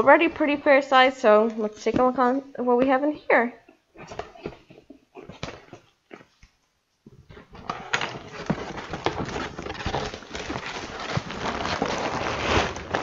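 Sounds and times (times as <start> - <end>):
plastic bags crinkling in cardboard box: 7.6 - 13.0.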